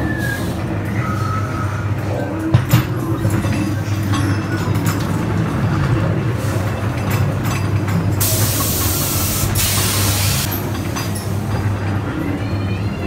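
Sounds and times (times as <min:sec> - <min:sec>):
ride car rumbling on track: 0:00.0 - 0:13.0
loud air hiss: 0:08.2 - 0:10.5.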